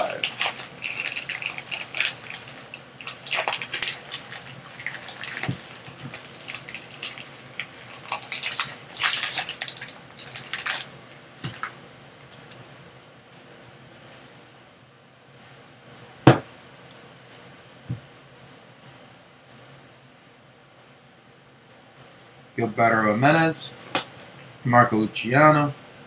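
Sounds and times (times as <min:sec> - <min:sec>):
foil wrapper crinkling and tearing: 0:00.0 - 0:12.6.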